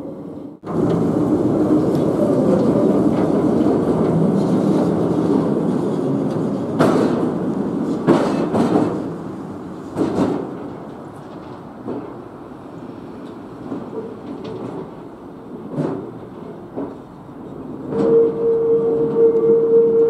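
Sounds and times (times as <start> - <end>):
tram wheels rumbling: 0.0 - 20.0
sharp clunks of wheels on track: 6.3 - 9.1, 9.9 - 12.2, 15.7 - 17.1.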